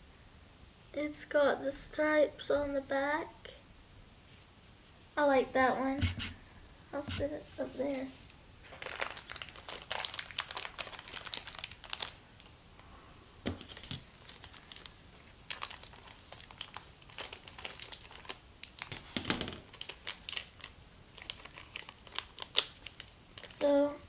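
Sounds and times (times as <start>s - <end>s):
plastic bag crinkling and tearing: 7.8s - 12.6s, 13.4s - 23.9s.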